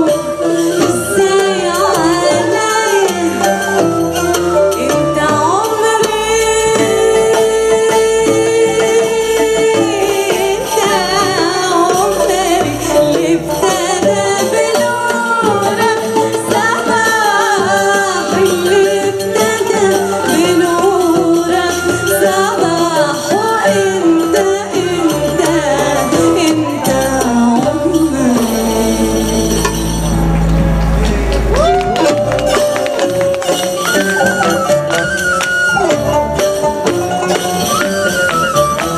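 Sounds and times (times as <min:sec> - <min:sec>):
woman singing: 0:00.0 - 0:30.2
oud and qanun playing: 0:00.0 - 0:38.9
deep bass note: 0:28.6 - 0:32.5.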